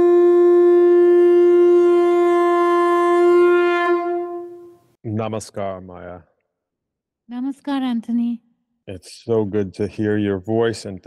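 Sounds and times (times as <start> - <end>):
horn-like wind instrument note: 0.0 - 4.8.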